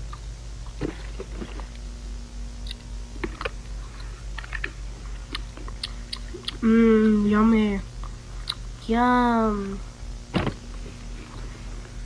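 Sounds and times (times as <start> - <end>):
mouth clicks and smacks: 2.6 - 6.6, 8.0 - 8.7
person chewing candy: 2.6 - 6.8, 8.0 - 8.7.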